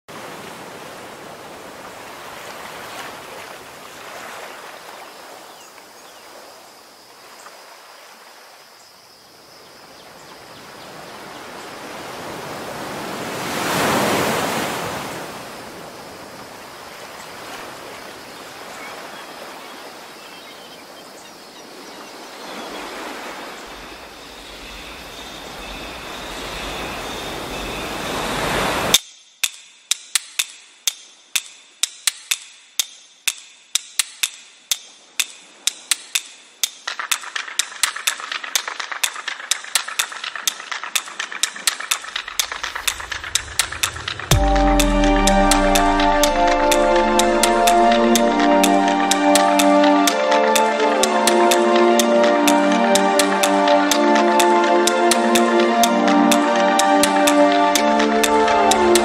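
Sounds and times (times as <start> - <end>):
ocean waves: 0.1 - 29.0, 34.7 - 59.0
sharp click: 29.0 - 48.0.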